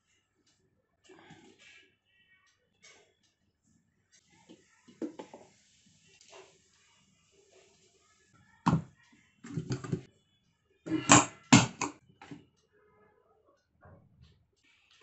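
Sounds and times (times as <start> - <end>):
kettle lids knocking and clicking: 10.9 - 12.0.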